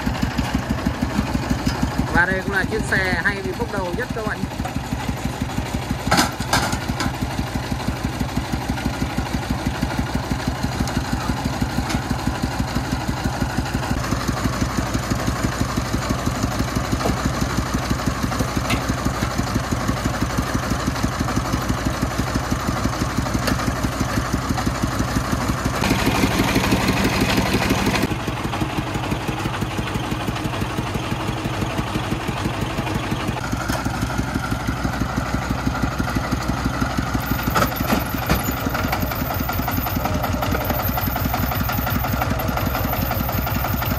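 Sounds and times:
diesel engine idling: 0.0s - 43.9s
loud broad noise: 25.8s - 28.1s.

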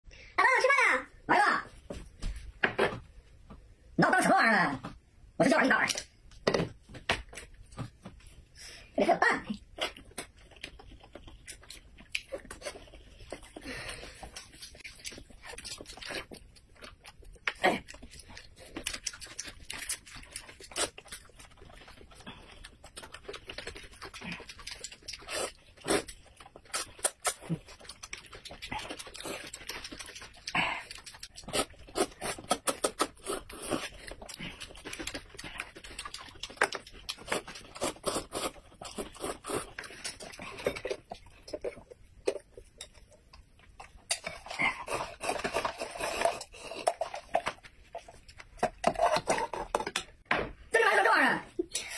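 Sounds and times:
chewing with wet smacks: 9.6s - 45.0s
noodles being slurped: 44.2s - 49.8s.

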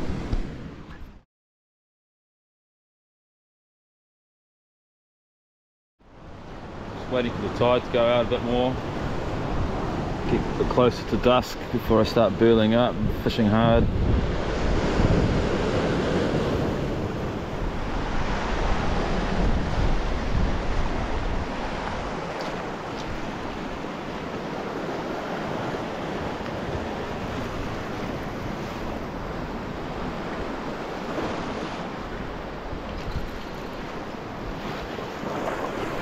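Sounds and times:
wind on microphone: 12.9s - 36.0s
waves breaking on rocks: 14.3s - 36.0s.

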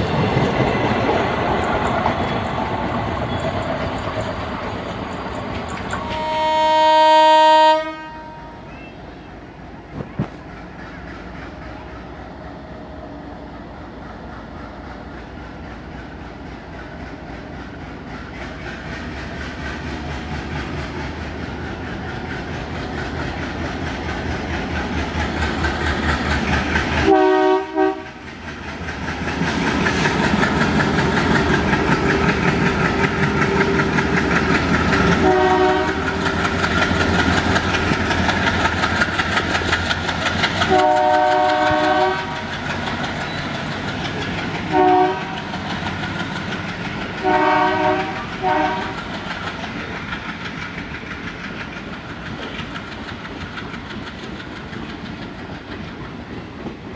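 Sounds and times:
diesel locomotive engine chugging: 0.0s - 56.9s
train horn blasts: 6.0s - 8.7s, 27.0s - 28.2s, 35.2s - 36.1s, 40.7s - 42.4s, 44.7s - 45.5s, 47.2s - 49.0s.

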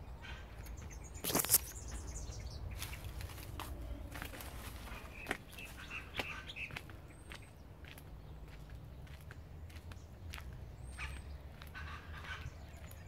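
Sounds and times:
footsteps on dirt path: 0.5s - 13.0s
leaves rustling: 1.1s - 6.2s.

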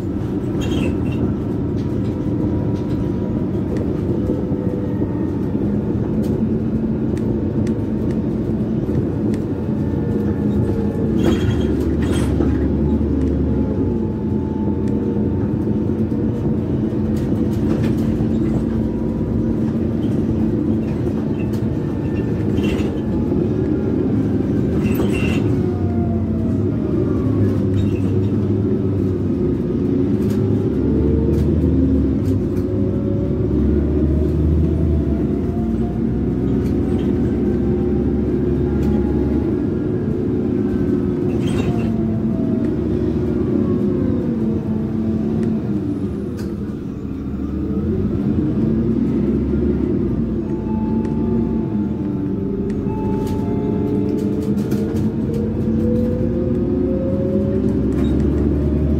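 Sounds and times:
body rattles and clicks: 0.0s - 37.8s, 51.9s - 58.8s
bus engine rumble: 0.0s - 58.9s
drivetrain whine: 0.0s - 58.9s.

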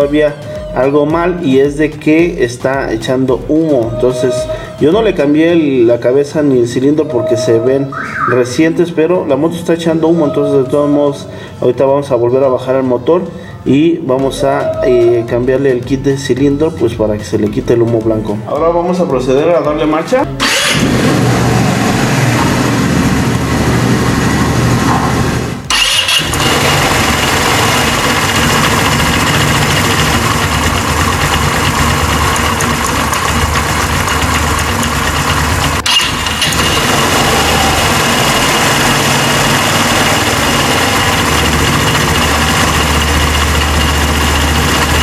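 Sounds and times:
scooter engine idling: 18.9s - 45.0s.

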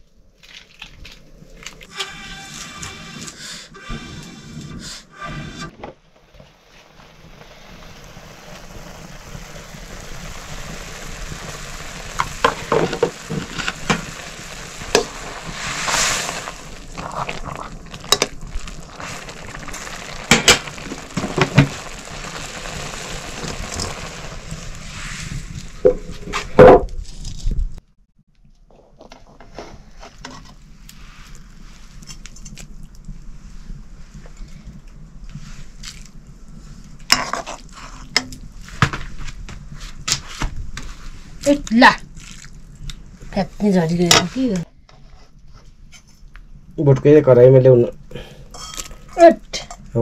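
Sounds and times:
food sizzling in a pan: 6.8s - 26.1s.

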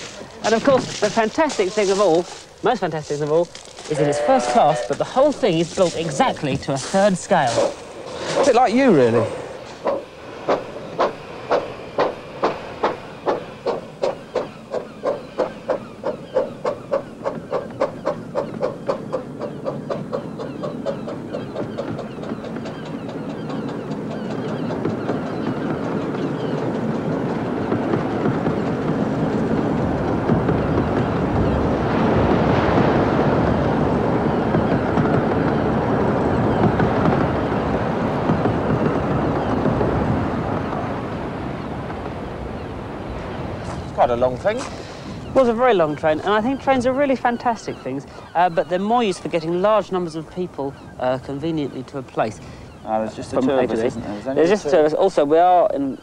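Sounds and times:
train wheels rumbling on track: 0.0s - 4.0s, 4.8s - 53.2s
steam train chuffing: 7.0s - 24.3s.

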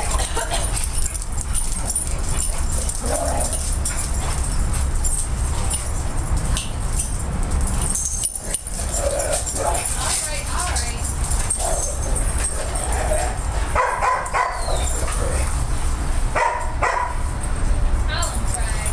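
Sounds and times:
dogs playing: 0.0s - 18.9s.

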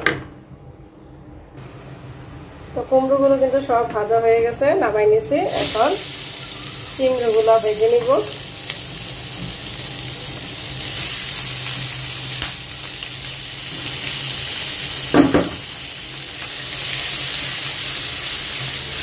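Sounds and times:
prawns sizzling in oil: 5.2s - 19.0s.

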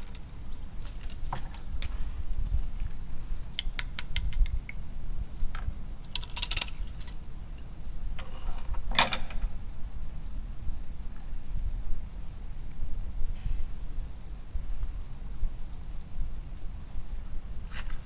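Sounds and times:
small metal clicks and clinks: 6.1s - 7.2s.

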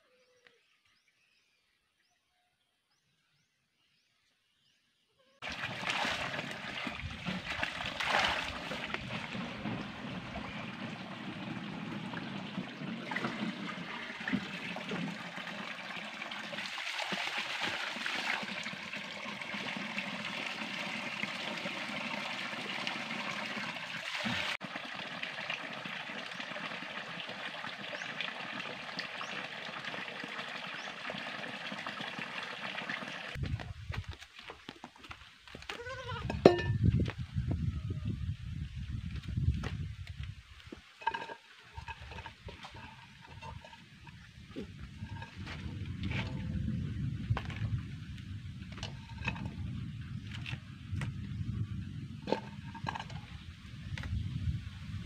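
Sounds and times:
water trickling over rocks: 5.4s - 35.6s, 39.3s - 46.6s, 47.3s - 51.2s, 52.2s - 54.2s.

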